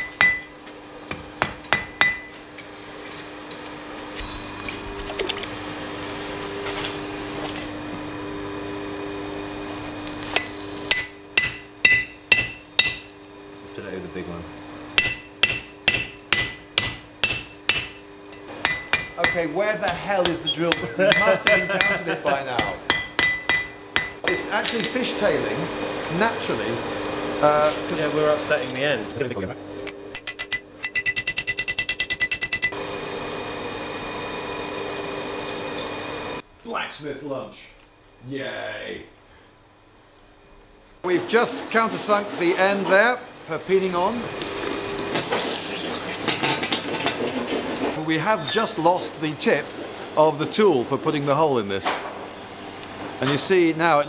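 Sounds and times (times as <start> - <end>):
hammer striking steel on anvil: 0.0 - 0.5, 1.1 - 2.4, 10.4 - 13.1, 15.0 - 24.9, 29.8 - 32.8
steady mechanical hum: 0.0 - 54.0.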